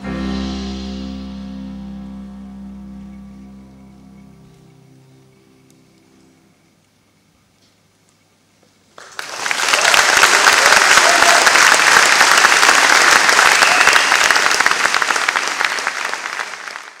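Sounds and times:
audience applauding: 0:08.9 - 0:17.0.

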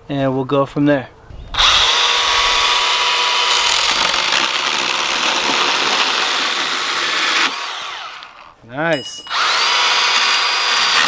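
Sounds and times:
pruning saw motor whine: 0:01.5 - 0:08.5, 0:09.3 - 0:11.0
saw chain rasping in wood: 0:09.0 - 0:11.0.

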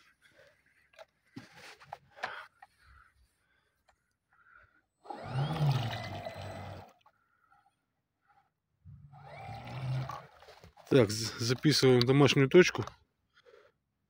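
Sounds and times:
boat motors whining: 0:04.4 - 0:12.0.

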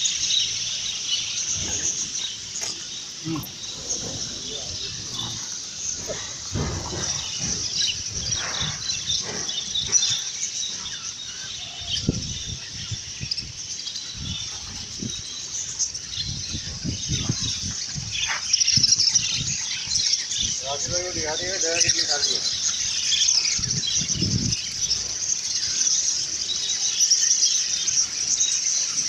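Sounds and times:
birds chirping: 0:00.0 - 0:29.0
low thumps and rustles: 0:01.5 - 0:10.4.

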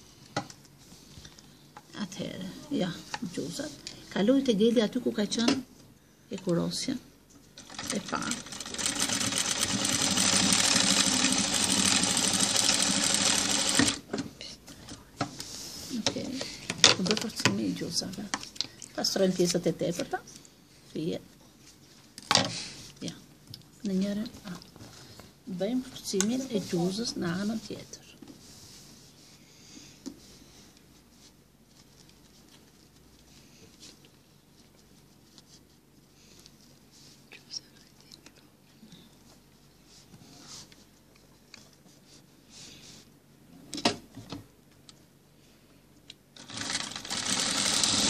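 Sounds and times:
sewing machine stitching: 0:07.6 - 0:14.0, 0:46.4 - 0:48.0.

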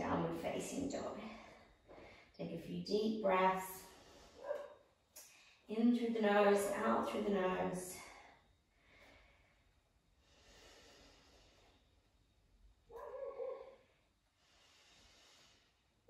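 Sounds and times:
deep breaths through nose: 0:08.7 - 0:11.9, 0:14.2 - 0:15.9.

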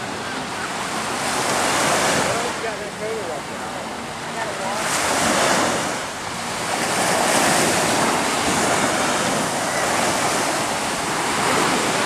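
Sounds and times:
small waves washing on sand: 0:00.0 - 0:12.0
wind on microphone: 0:04.2 - 0:12.0.

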